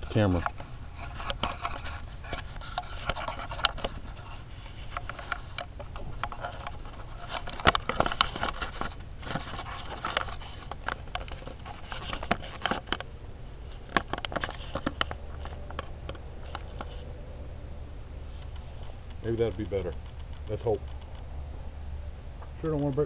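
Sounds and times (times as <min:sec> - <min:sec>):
camera handling clicks and scraping: 0:00.3 - 0:13.1, 0:13.7 - 0:17.1.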